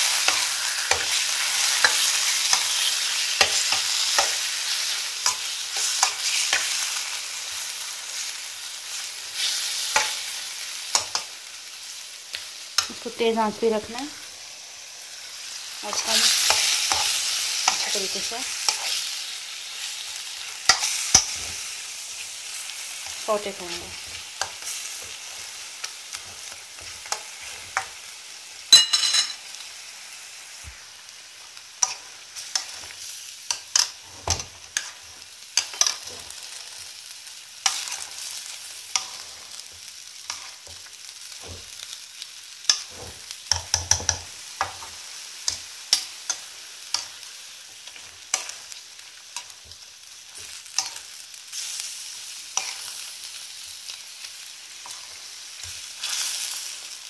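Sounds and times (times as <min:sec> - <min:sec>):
chicken sizzling in hot oil: 0:00.0 - 0:57.0.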